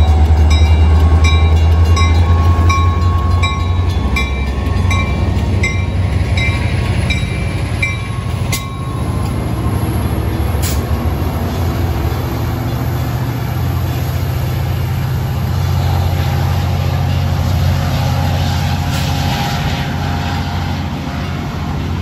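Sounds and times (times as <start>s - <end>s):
crossing bell dinging: 0.0s - 14.0s
diesel locomotive engine rumbling: 0.0s - 22.0s.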